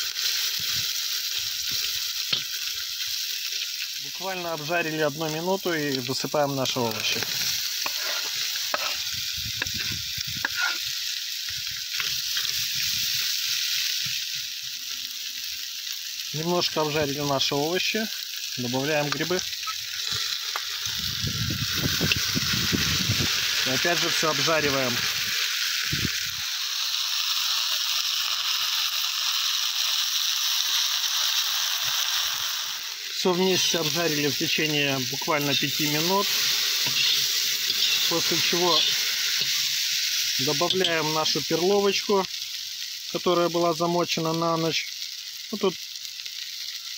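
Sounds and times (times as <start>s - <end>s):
vegetables sizzling in butter: 0.0s - 46.9s
metal spoon scraping pot: 7.8s - 9.0s, 9.6s - 10.8s, 36.8s - 39.7s.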